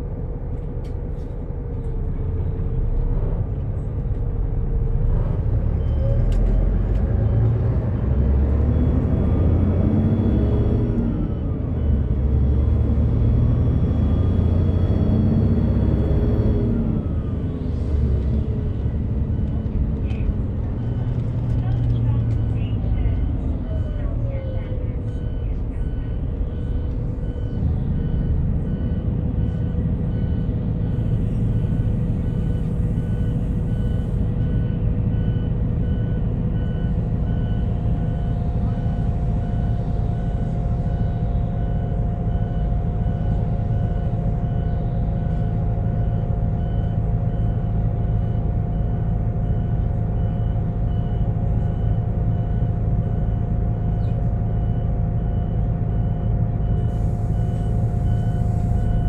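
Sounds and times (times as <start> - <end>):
diesel engine low drone: 0.0 - 59.0
faint repeating beep: 45.4 - 59.0.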